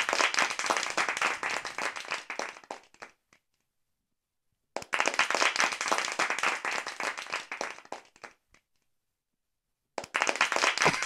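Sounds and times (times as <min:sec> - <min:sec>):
audience applause: 0:00.0 - 0:03.1, 0:04.8 - 0:08.4, 0:10.0 - 0:11.0.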